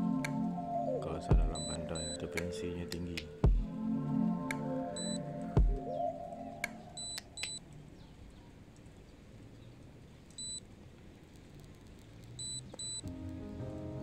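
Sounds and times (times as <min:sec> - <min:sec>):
short high electronic beeps: 0:01.5 - 0:02.2, 0:10.4 - 0:10.6, 0:12.4 - 0:13.0
faint steady hiss: 0:06.1 - 0:14.0.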